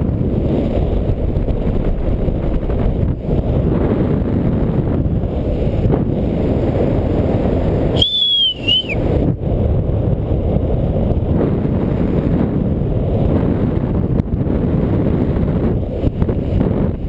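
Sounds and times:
wind rushing over microphone: 0:00.0 - 0:17.0
short clear whistle: 0:08.0 - 0:09.0.

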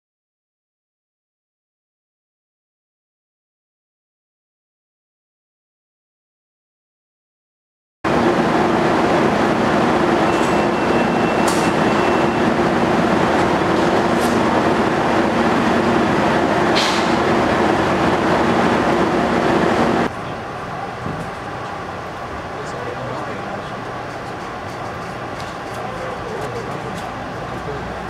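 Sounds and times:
locomotive diesel engine rumbling: 0:08.1 - 0:28.0.

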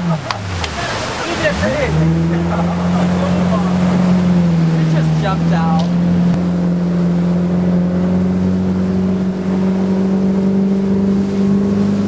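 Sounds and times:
speedboat engine running: 0:00.0 - 0:12.0
steady rushing noise: 0:00.0 - 0:12.0.

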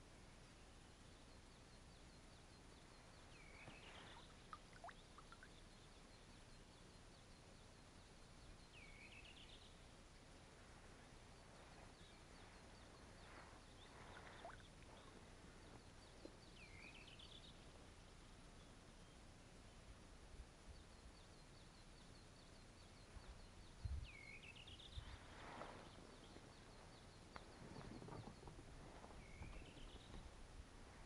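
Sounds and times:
water drips plinking: 0:04.5 - 0:05.5
faint bird calling: 0:11.8 - 0:15.8.

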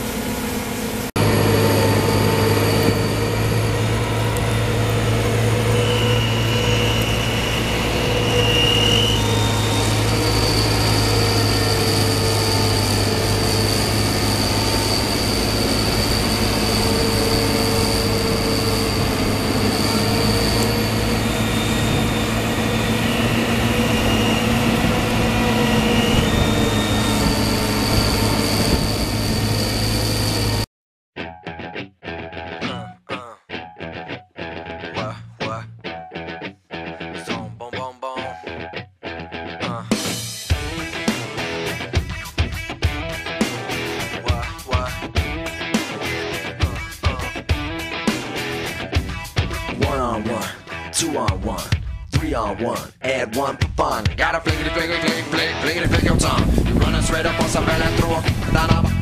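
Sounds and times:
high machinery whines: 0:00.0 - 0:30.7, 0:40.5 - 0:50.0, 0:54.5 - 0:59.0
low diesel hum: 0:00.0 - 0:30.7, 0:54.7 - 0:59.0.

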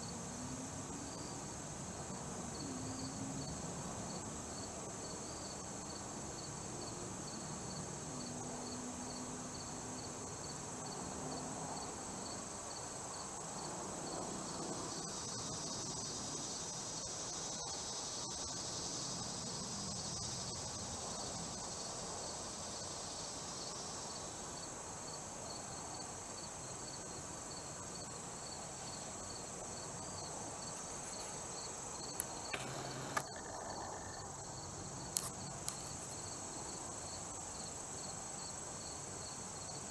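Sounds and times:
insect drone: 0:00.0 - 0:39.9
pulsing insect chirp: 0:11.8 - 0:24.7, 0:25.5 - 0:39.9
sharp clicks: 0:32.1 - 0:33.5.

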